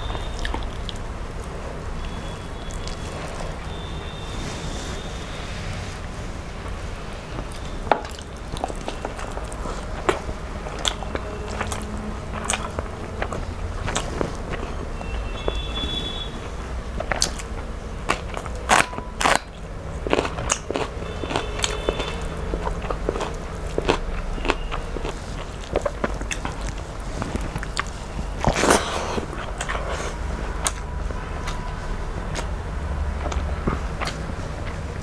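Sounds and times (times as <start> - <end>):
woman chewing food: 0.0 - 5.4, 6.4 - 35.0
wet mouth clicks and smacks: 32.3 - 32.6.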